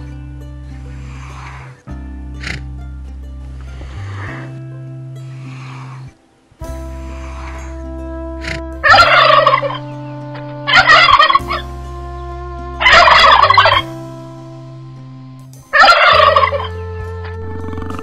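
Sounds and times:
background music: 0:00.0 - 0:18.0
large bird calling: 0:05.2 - 0:14.0, 0:15.7 - 0:18.0.

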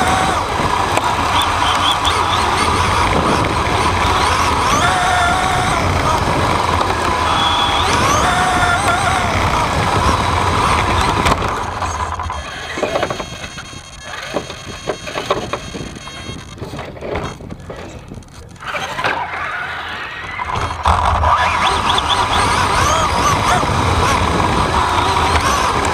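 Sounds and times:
rc buggy motor whine: 0:00.0 - 0:25.9
tyre and chassis rattle: 0:00.0 - 0:25.9
knocks and clicks: 0:08.8 - 0:17.6.

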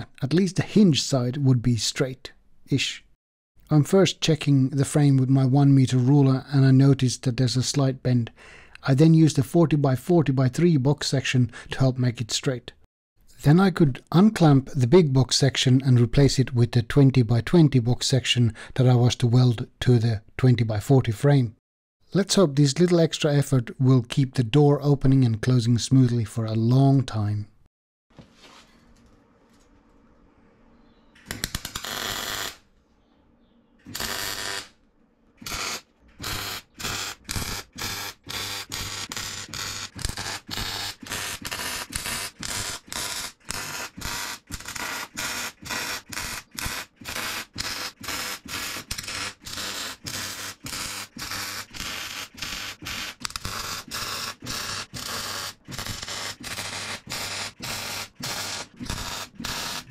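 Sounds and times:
welder arc bursts: 0:31.3 - 0:32.6, 0:33.9 - 0:34.8, 0:35.4 - 0:59.9.

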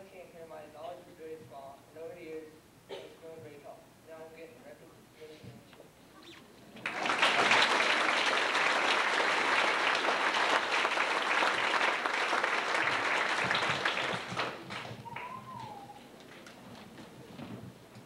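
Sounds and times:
audience applauding: 0:06.8 - 0:16.0.

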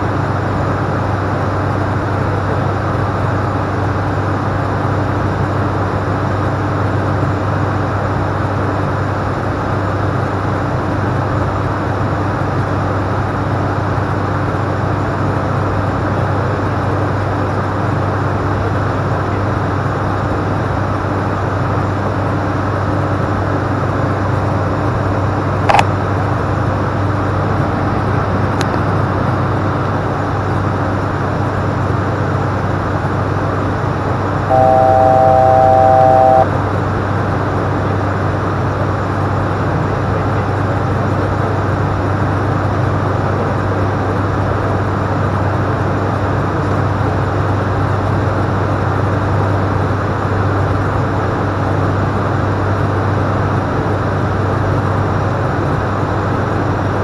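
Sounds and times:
constant low hum: 0:00.0 - 0:57.0
turboprop engines and propellers: 0:00.0 - 0:57.0
sharp click: 0:25.7 - 0:25.9
three-tone electronic alert chord: 0:34.5 - 0:36.5.

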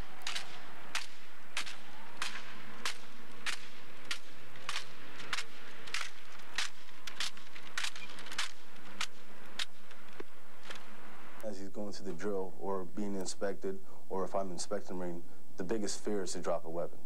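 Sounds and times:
hands smacking rifles: 0:00.0 - 0:10.9.

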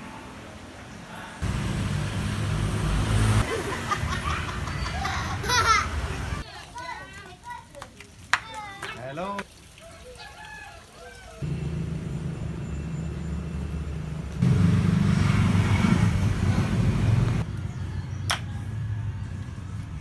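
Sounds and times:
vehicle engine humming: 0:01.4 - 0:06.4, 0:11.4 - 0:20.0.

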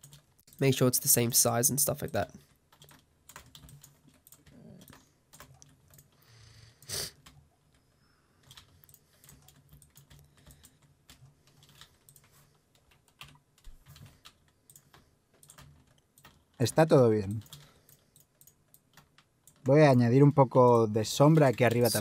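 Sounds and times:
computer keyboard keys clicking: 0:00.0 - 0:00.8, 0:01.6 - 0:06.2, 0:06.8 - 0:22.0.

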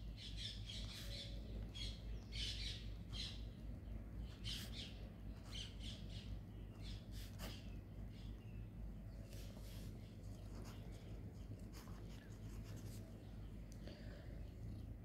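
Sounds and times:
pen scratching on paper: 0:10.4 - 0:10.9, 0:11.6 - 0:13.0.

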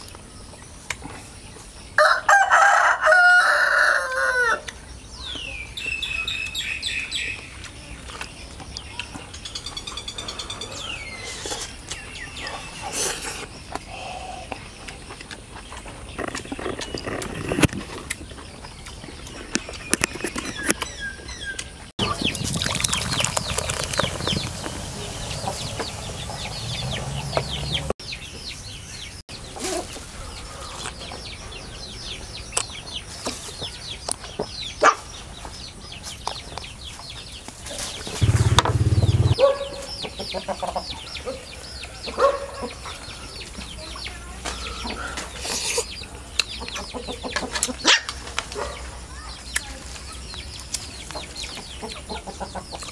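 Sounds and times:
small birds chirping: 0:04.7 - 0:52.9
person eating: 0:22.0 - 0:24.5
chickens clucking: 0:22.0 - 0:28.0, 0:37.8 - 0:48.9, 0:51.1 - 0:52.9.

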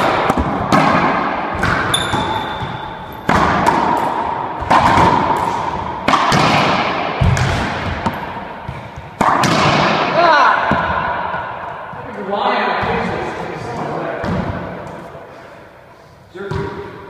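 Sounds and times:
ball smacking racquets and walls: 0:00.0 - 0:12.1, 0:12.8 - 0:15.2, 0:16.5 - 0:17.0.

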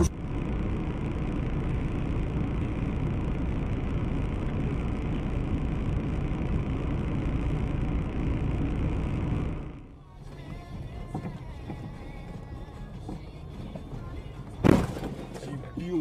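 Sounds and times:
car interior rumble and hiss: 0:00.0 - 0:16.0.

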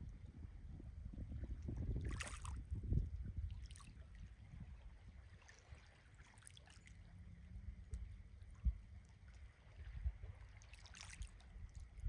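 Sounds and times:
wind buffeting microphone: 0:00.0 - 0:05.4, 0:09.7 - 0:10.5, 0:11.4 - 0:12.0.

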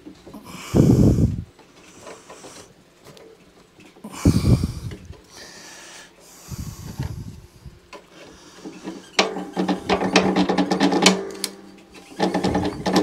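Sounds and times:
metallic clicking and scraping: 0:07.9 - 0:13.0.

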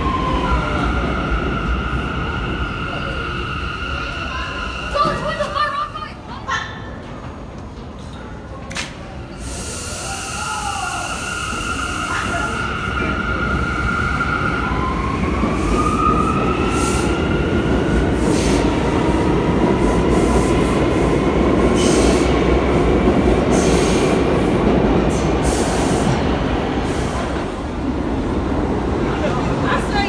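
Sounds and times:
train wheels rumbling on rails: 0:10.4 - 0:30.0.

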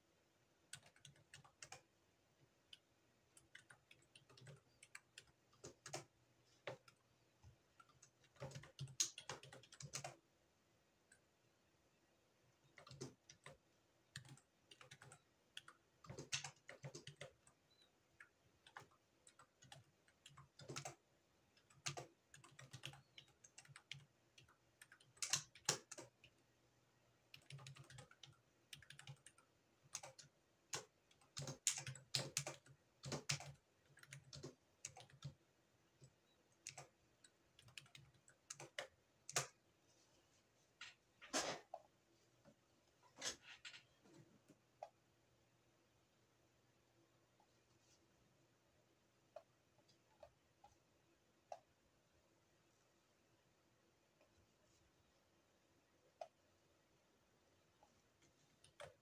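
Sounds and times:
keyboard typing: 0:00.5 - 0:10.4, 0:12.5 - 0:26.6, 0:27.2 - 0:39.7, 0:57.7 - 0:59.0.

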